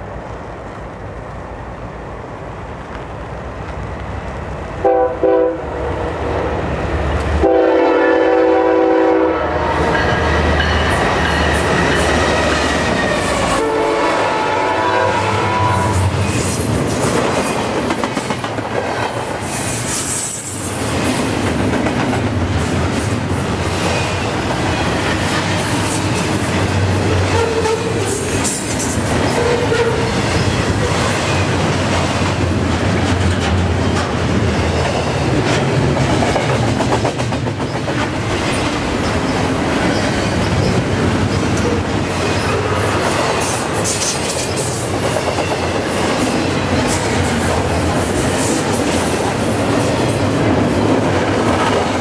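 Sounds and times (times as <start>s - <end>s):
diesel locomotives passing: 0.0s - 52.0s
train air horn: 4.8s - 6.0s, 7.4s - 10.4s, 12.3s - 16.2s, 27.2s - 28.3s, 29.3s - 30.2s
train wheels clattering on rail: 9.6s - 52.0s.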